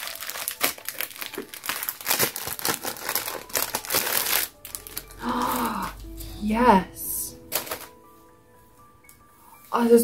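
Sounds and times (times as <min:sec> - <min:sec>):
plastic packaging crinkling: 0:00.0 - 0:06.0, 0:07.5 - 0:08.0.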